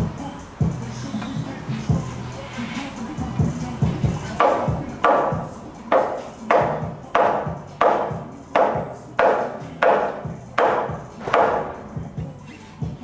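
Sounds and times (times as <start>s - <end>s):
hammer striking timber beam: 4.4s - 11.9s.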